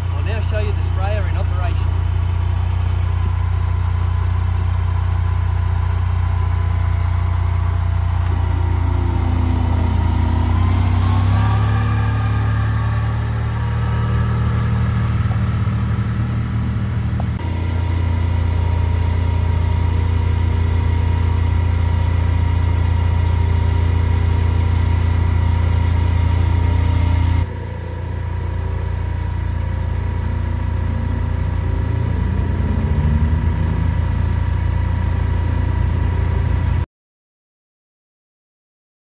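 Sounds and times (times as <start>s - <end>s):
utility vehicle engine idling: 0.0s - 36.8s
water spraying from nozzles: 8.1s - 36.8s.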